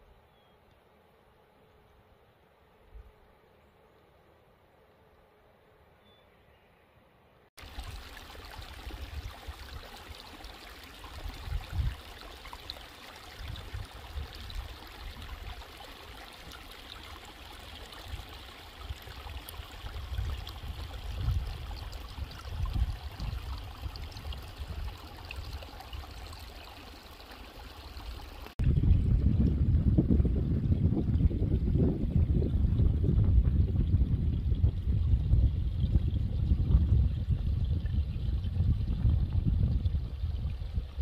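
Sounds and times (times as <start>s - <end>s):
running water rushing: 7.6s - 29.6s
wind buffeting microphone: 11.1s - 12.1s, 13.4s - 15.6s, 18.1s - 26.2s, 28.6s - 41.0s.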